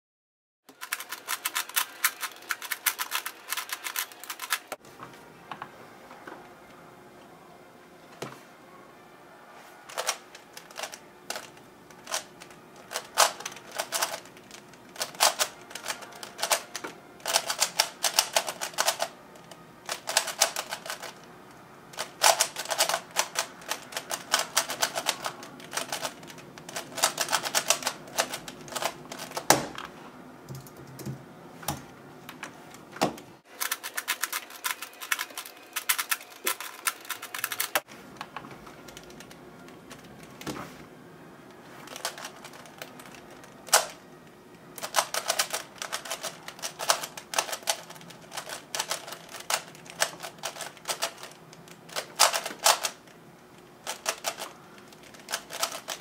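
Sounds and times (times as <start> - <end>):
plastic speed cube clicking: 0.8 - 4.6, 9.9 - 19.1, 19.9 - 21.2, 22.0 - 29.4, 44.8 - 53.0, 53.9 - 56.0.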